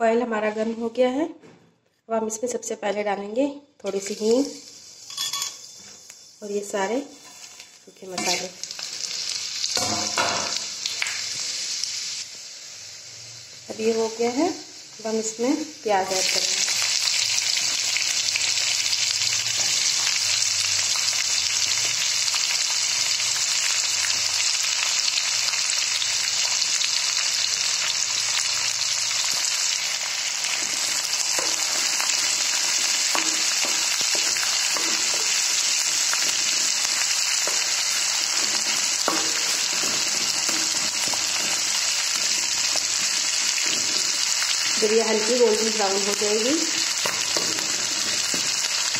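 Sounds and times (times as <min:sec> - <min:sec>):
onions sizzling in hot oil: 0:03.8 - 0:48.9
wooden spatula scraping pan: 0:07.2 - 0:08.5, 0:37.4 - 0:44.1.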